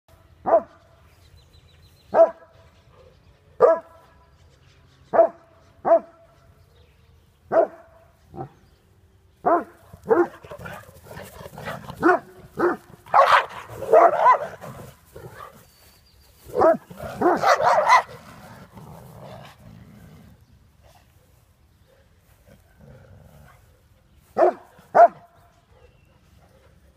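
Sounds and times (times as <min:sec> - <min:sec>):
dogs barking: 0:00.4 - 0:00.8, 0:02.1 - 0:02.6, 0:03.6 - 0:04.1, 0:05.1 - 0:06.4, 0:07.5 - 0:08.6, 0:09.4 - 0:15.6, 0:16.5 - 0:18.6, 0:23.6 - 0:26.7
dogs fighting: 0:09.9 - 0:15.7, 0:16.4 - 0:20.4.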